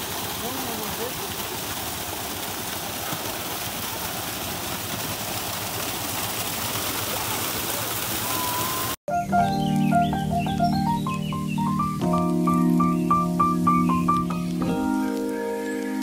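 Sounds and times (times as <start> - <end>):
water pouring over stones: 0.0 - 9.0.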